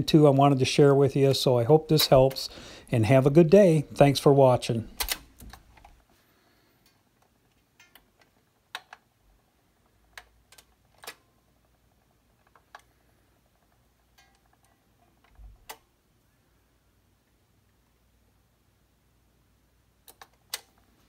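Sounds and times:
faint clicks and ticks: 6.7s - 15.9s.

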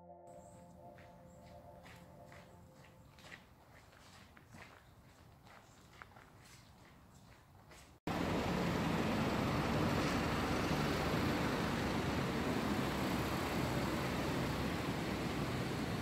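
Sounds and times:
passing road traffic rumble: 8.1s - 16.0s.

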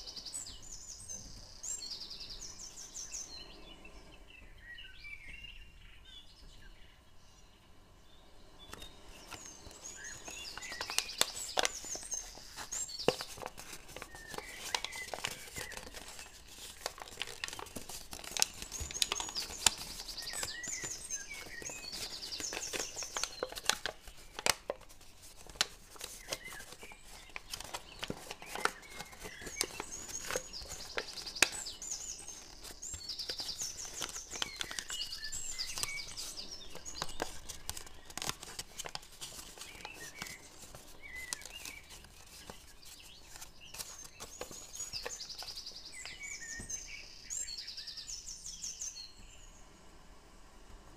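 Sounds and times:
birds chirping: 0.0s - 49.6s
paper being folded and creased: 8.7s - 46.2s.

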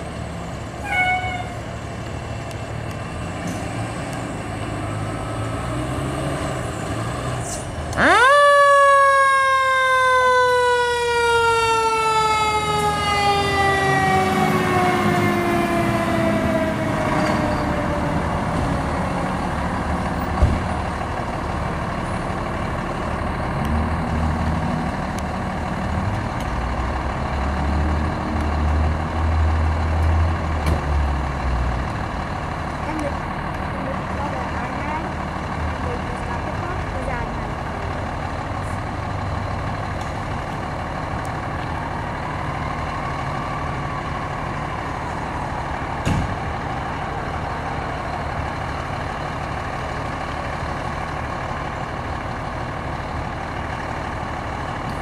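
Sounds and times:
deep engine rumble: 0.0s - 55.0s
diesel engines idling: 0.0s - 55.0s
mechanical siren: 8.0s - 18.4s.

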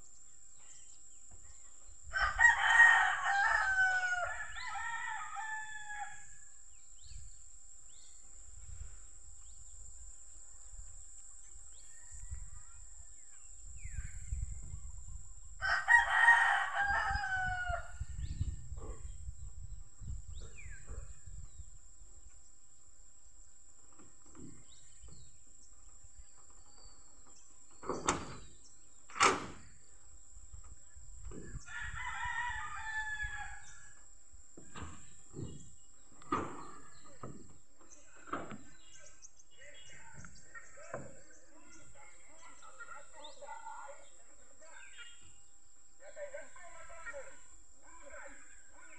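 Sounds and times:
rooster crowing: 2.1s - 6.4s, 15.6s - 18.0s, 31.6s - 33.9s.

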